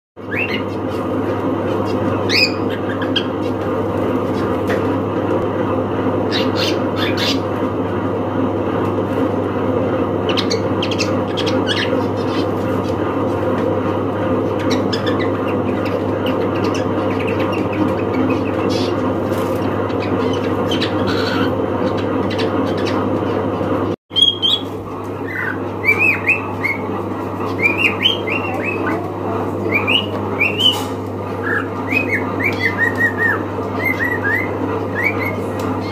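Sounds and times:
low background hum: 0.2s - 35.9s
cockatiels chirping and squawking: 0.3s - 1.1s, 1.7s - 4.7s, 6.3s - 7.5s, 10.3s - 13.1s, 14.4s - 23.1s, 24.2s - 35.9s.

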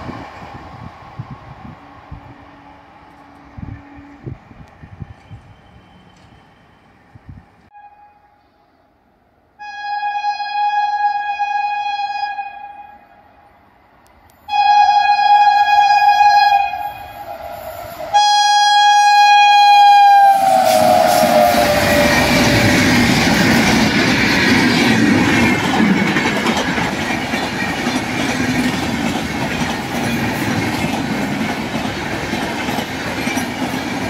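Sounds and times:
train rumbling past: 0.0s - 7.7s, 13.2s - 34.0s
locomotive horn blasts: 7.7s - 8.4s, 14.5s - 17.3s, 18.1s - 22.7s.

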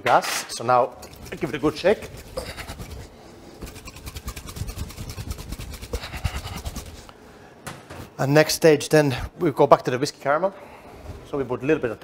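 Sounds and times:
liquid sloshing in shaken bottle: 0.9s - 7.1s.

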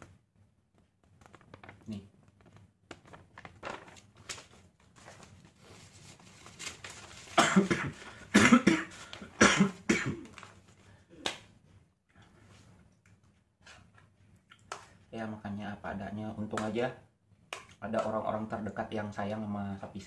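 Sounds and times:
paper rustling: 0.8s - 8.3s, 8.9s - 9.4s, 10.2s - 11.0s
man coughing: 7.4s - 10.3s.

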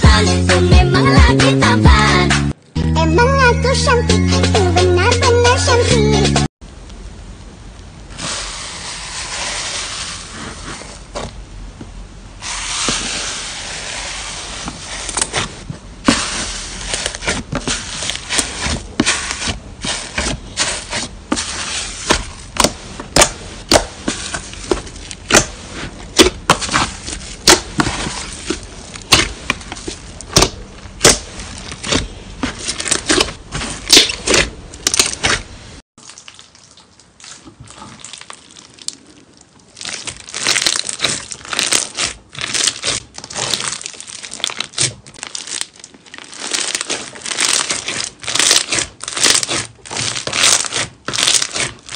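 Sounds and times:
hands squishing slime: 12.8s - 51.9s.

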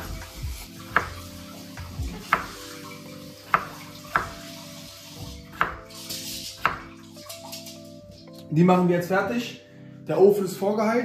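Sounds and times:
knife striking cutting board: 0.0s - 7.7s
soft background music: 0.0s - 11.0s.

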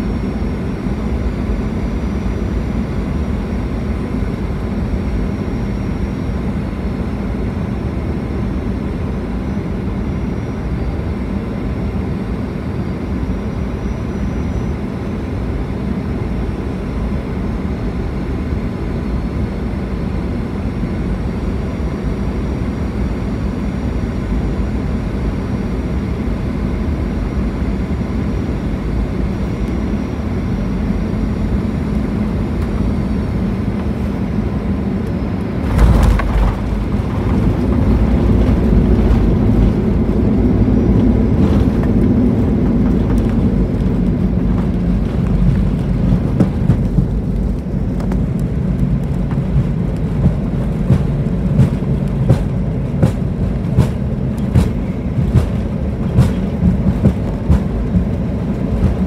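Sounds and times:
aircraft cabin engine drone: 0.0s - 59.0s
landing roll rumble: 35.6s - 47.2s.

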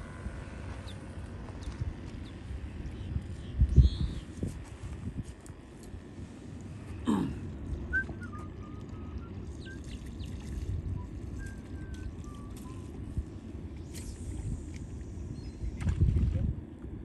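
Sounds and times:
wind rumbling on microphone: 0.0s - 17.0s
faint high bird whistles: 7.9s - 10.0s, 11.4s - 12.9s.

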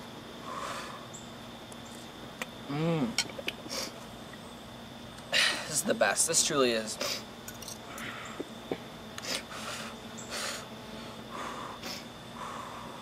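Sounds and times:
noisy breathing puffs: 0.4s - 1.1s, 7.0s - 8.6s, 9.2s - 13.0s.

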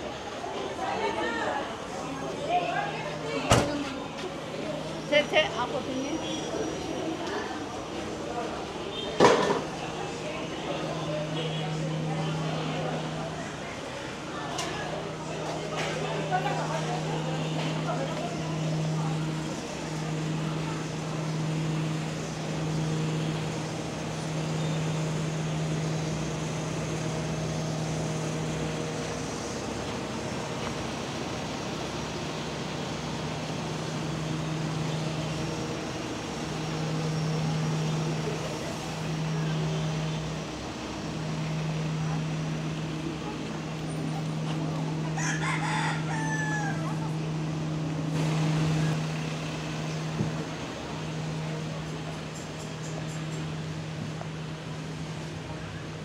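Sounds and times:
low machine hum: 0.0s - 56.0s
outdoor noise: 0.0s - 56.0s
rooster crowing: 45.1s - 47.0s.

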